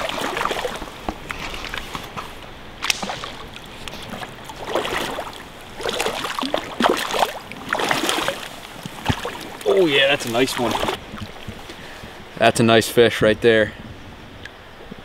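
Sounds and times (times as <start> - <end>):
fish splashing at water surface: 0.0 - 1.8, 2.8 - 11.6
water sloshing around legs: 0.0 - 12.0.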